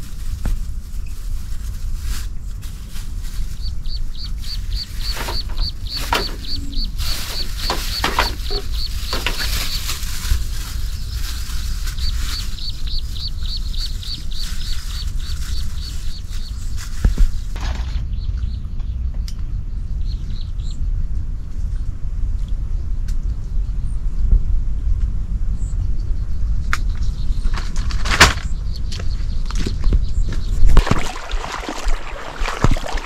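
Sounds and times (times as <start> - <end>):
low steady rumble: 0.0 - 27.9
louder calls: 4.5 - 9.5.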